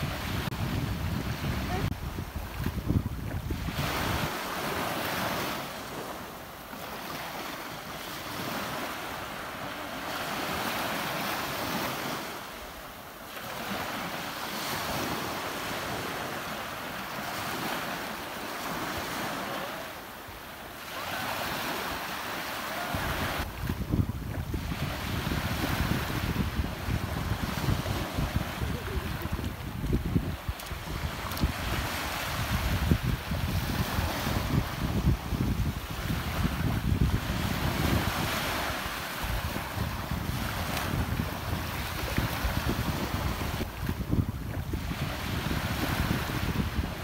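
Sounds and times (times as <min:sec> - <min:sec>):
wind buffeting microphone: 0:00.0 - 0:06.1, 0:22.9 - 0:47.0
ocean waves breaking on shore: 0:00.0 - 0:47.0.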